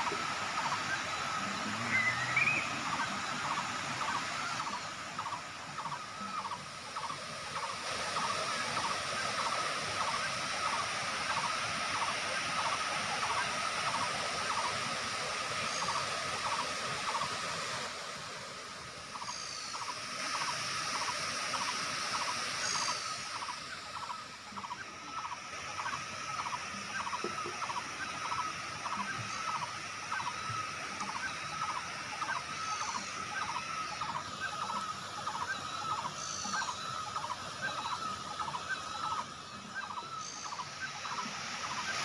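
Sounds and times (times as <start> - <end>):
waterfall cascading into pools: 0.0 - 42.0
pulsing call: 0.6 - 4.8.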